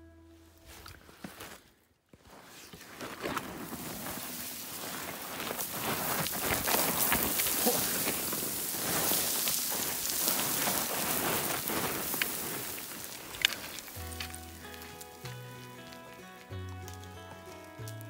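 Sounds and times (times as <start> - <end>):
boots skidding on scree: 1.0 - 18.0
stones rattling and clattering: 3.2 - 14.9.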